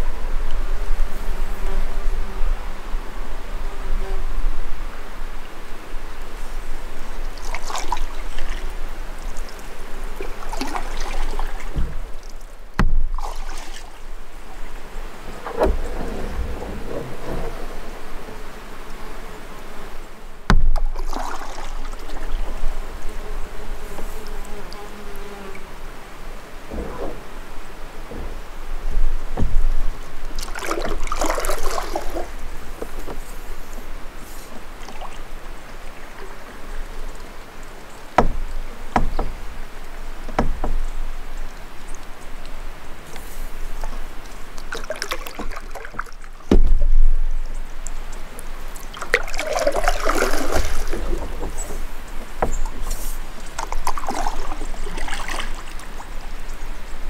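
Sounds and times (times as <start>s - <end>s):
paddle dipping and swishing: 6.2s - 18.8s, 20.4s - 23.1s, 26.3s - 47.1s, 47.8s - 56.4s
paddle knocking canoe: 7.0s - 19.0s, 20.4s - 23.1s, 26.3s - 47.3s, 48.1s - 56.1s
water splash: 7.3s - 17.8s, 20.4s - 22.6s, 26.7s - 32.7s, 43.8s - 47.2s, 48.7s - 56.1s.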